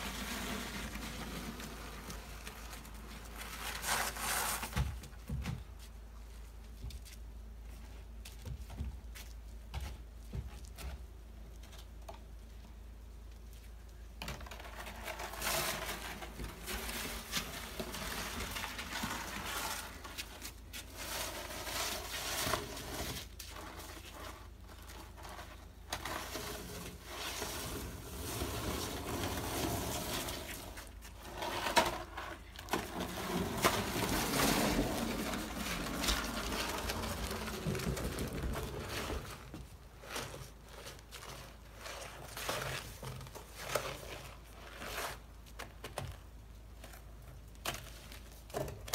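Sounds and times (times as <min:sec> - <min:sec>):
shovel scraping slush on wood: 0:00.0 - 0:04.8, 0:14.8 - 0:45.3.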